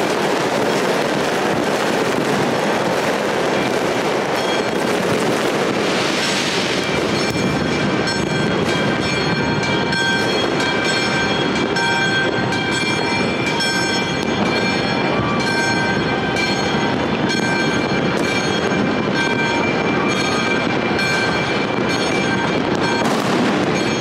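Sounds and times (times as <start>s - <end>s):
fireworks popping and crackling: 0.0s - 24.0s
sharp bangs: 0.0s - 24.0s.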